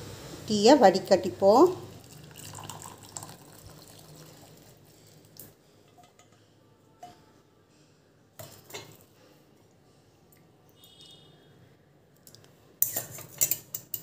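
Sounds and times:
tea trickling into a glass: 1.8 - 5.6.

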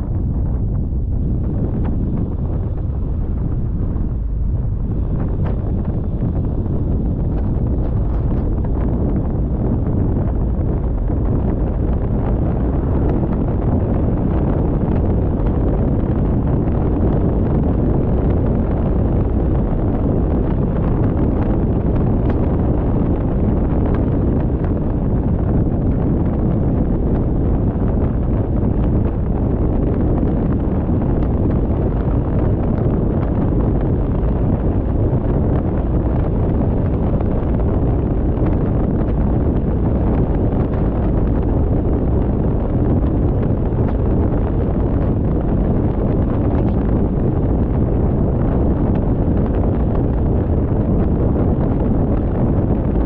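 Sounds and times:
car road noise at speed: 0.0 - 53.0
wind buffeting microphone: 0.0 - 53.0.

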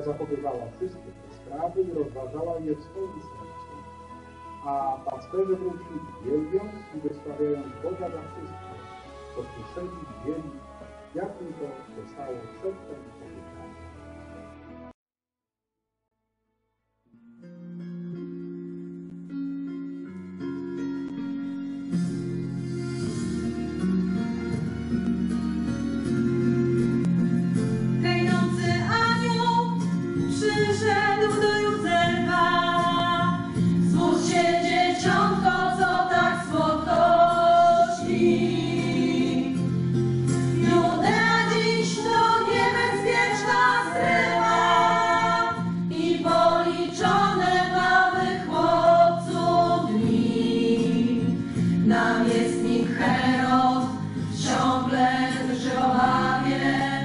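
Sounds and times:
women's choir singing: 30.3 - 39.6, 40.4 - 57.0.

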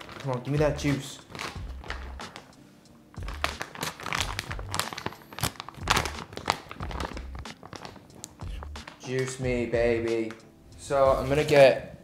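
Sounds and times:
plastic bag crinkling: 0.0 - 2.5, 3.1 - 9.4.

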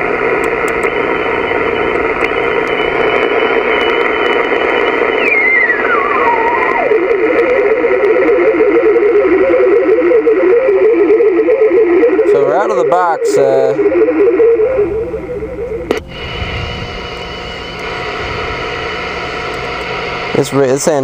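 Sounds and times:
radio receiver hiss: 0.0 - 21.0
high whistle gliding down: 5.0 - 7.0
low warbling tone: 5.1 - 7.3, 12.0 - 19.6.

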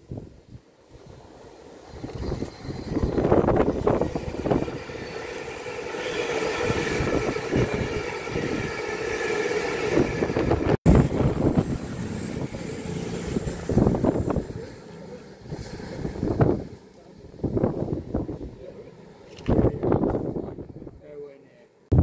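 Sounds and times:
wind on microphone: 0.0 - 5.0, 6.6 - 8.9, 9.8 - 14.7, 15.4 - 18.7, 19.4 - 21.0
train passing at speed: 0.0 - 21.0
multi-tone whine: 1.2 - 20.9.

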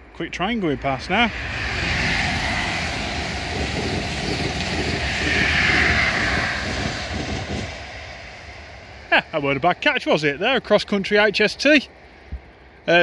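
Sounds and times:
train passing at speed: 0.0 - 13.0
train wheels on rails: 0.8 - 9.9.

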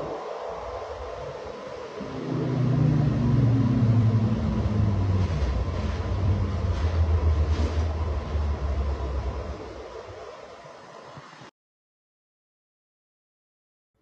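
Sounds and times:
vehicle engine humming: 2.0 - 10.3.

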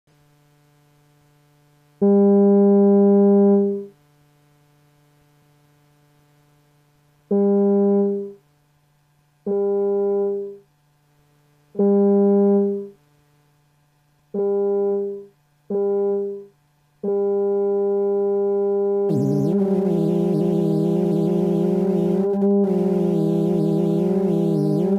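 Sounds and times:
synthesizer notes: 19.1 - 24.9.

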